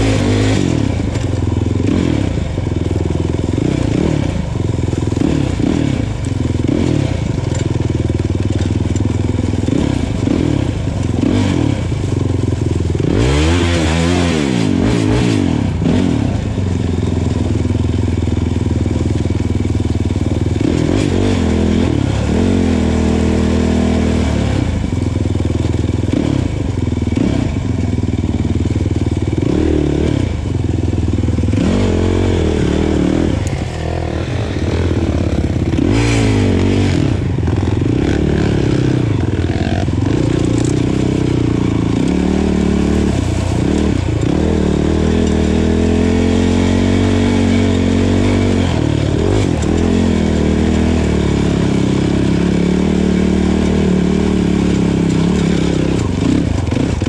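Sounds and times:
quad bike engine revving: 0:00.0 - 0:57.0.

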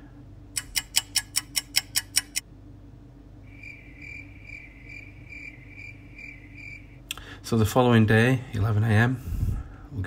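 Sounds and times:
fast clock ticking: 0:00.6 - 0:02.4
crickets chirping: 0:03.4 - 0:07.0.

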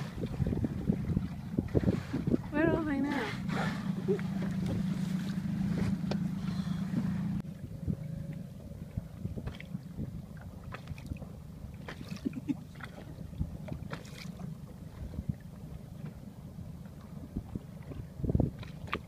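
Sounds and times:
wind crackling on microphone: 0:00.0 - 0:12.0, 0:17.0 - 0:19.0
boat engine humming: 0:00.0 - 0:19.0.

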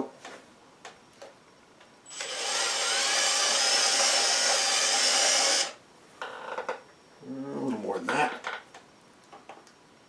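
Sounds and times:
cordless drill running: 0:02.1 - 0:05.8.

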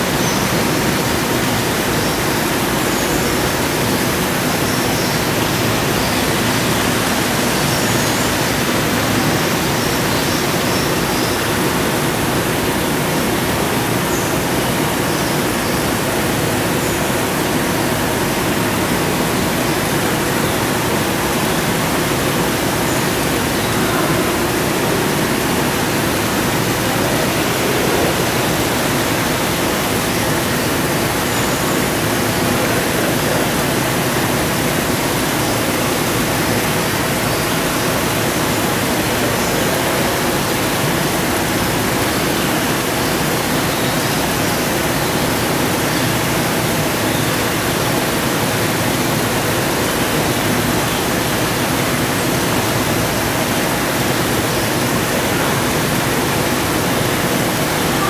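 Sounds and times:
steady rushing noise: 0:16.6 - 0:35.2.

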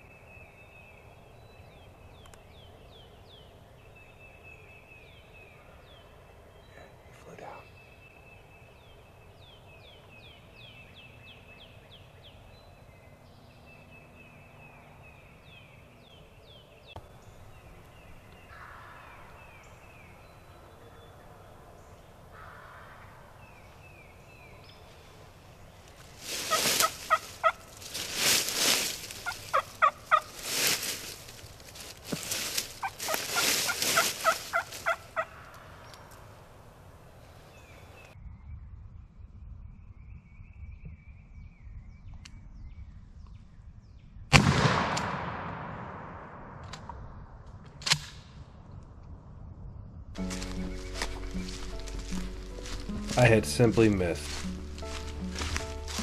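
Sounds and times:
turkey gobbling: 0:26.4 - 0:27.6, 0:29.2 - 0:30.3, 0:32.8 - 0:35.4.

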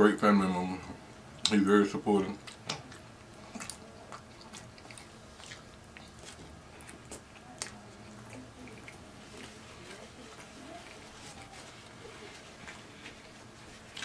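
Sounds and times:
person chewing: 0:02.4 - 0:14.0.

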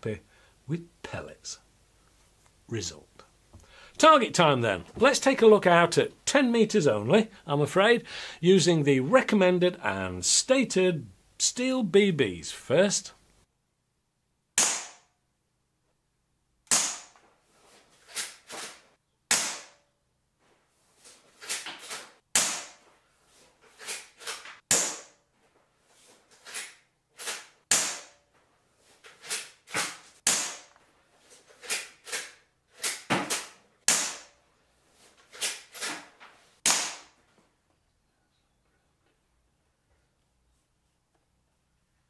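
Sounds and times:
air rifle shots cracking: 0:14.6 - 0:15.1, 0:16.7 - 0:17.2, 0:19.3 - 0:19.8, 0:36.6 - 0:37.2.

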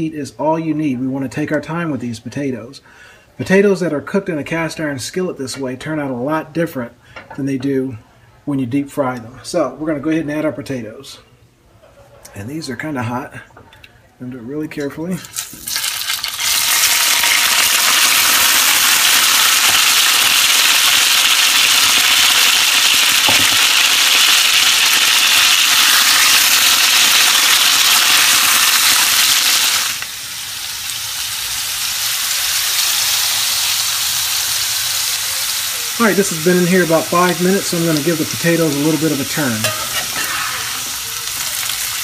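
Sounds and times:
potatoes sizzling in oil: 0:15.2 - 0:42.0.

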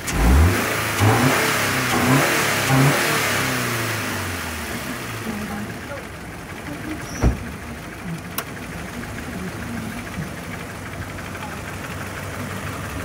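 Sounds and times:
car engine idling: 0:00.0 - 0:13.0
short low thump: 0:07.1 - 0:07.6.

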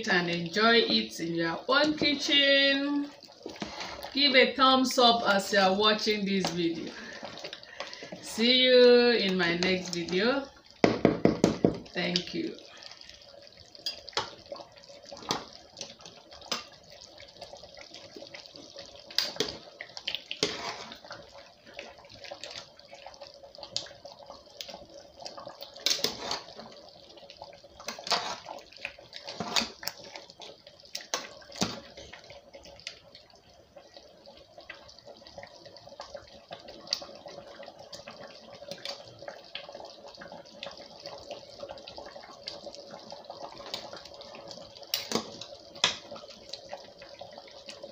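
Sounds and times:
thick liquid slopping and pouring: 0:01.7 - 0:04.4, 0:12.4 - 0:47.9.

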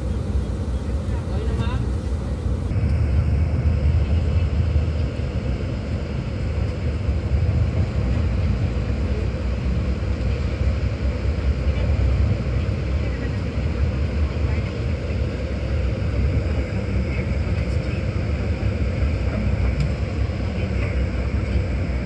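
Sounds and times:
bus diesel engine drone: 0:00.0 - 0:22.0.

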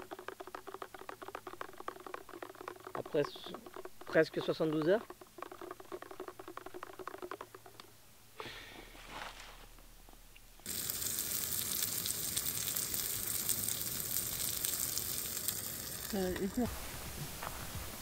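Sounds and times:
food sizzling: 0:10.6 - 0:18.0.

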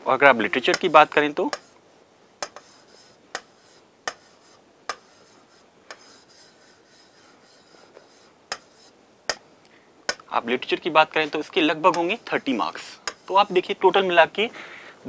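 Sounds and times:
marker squeaking on whiteboard: 0:00.5 - 0:01.8, 0:02.4 - 0:09.4, 0:11.1 - 0:13.7
marker tip tapping board: 0:00.7 - 0:01.7, 0:02.4 - 0:05.3, 0:05.9 - 0:06.2, 0:07.9 - 0:09.4, 0:10.1 - 0:10.3, 0:11.9 - 0:12.1, 0:13.0 - 0:13.3.

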